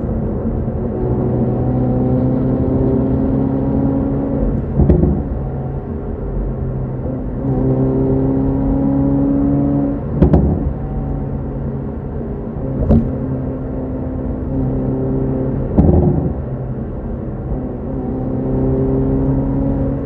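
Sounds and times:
car engine revving hard: 0.9s - 5.5s, 7.0s - 11.1s, 12.7s - 16.5s, 17.8s - 20.0s.

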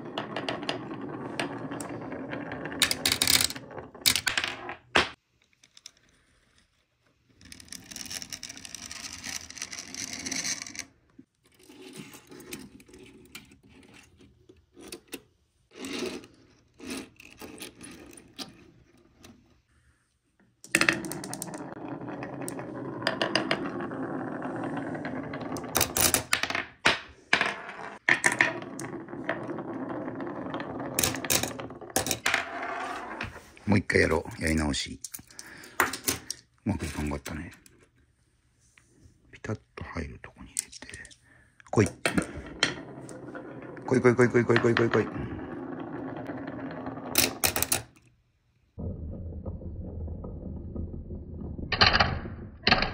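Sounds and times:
marbles rolling down wooden slope: 0.0s - 5.1s, 7.4s - 10.9s, 20.7s - 33.3s, 42.0s - 48.1s, 48.8s - 52.9s.

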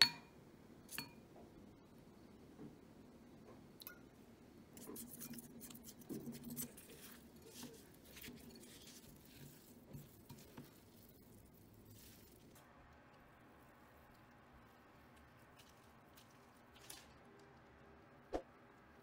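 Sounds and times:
wooden spoon scraping bowl: 5.2s - 12.5s.

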